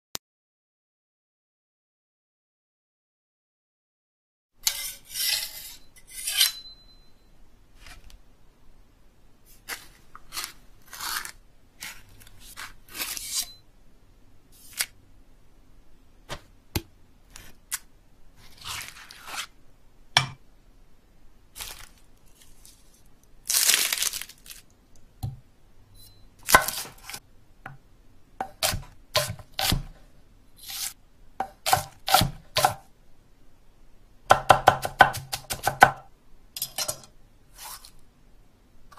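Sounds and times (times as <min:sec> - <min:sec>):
knife cutting and scraping: 0:04.6 - 0:06.8, 0:09.5 - 0:13.6, 0:18.4 - 0:19.6, 0:26.0 - 0:27.2, 0:28.4 - 0:30.0, 0:30.6 - 0:32.8, 0:37.5 - 0:38.0
knife on sharpening stone: 0:04.6 - 0:07.0, 0:12.9 - 0:13.6.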